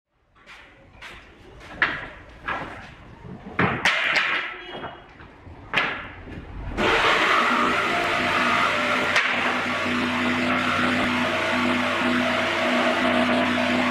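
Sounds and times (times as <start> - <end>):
wooden boards knocking: 1.7 - 6.4.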